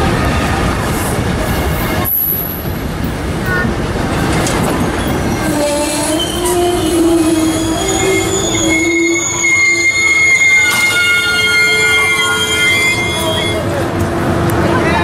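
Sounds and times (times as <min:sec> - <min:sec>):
train wheels squealing: 0:05.0 - 0:13.7.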